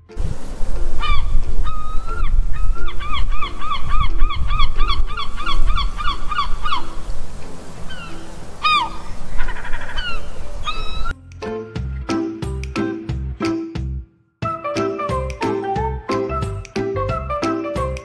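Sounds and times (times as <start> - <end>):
gull laughing calls: 7.9 - 11.1.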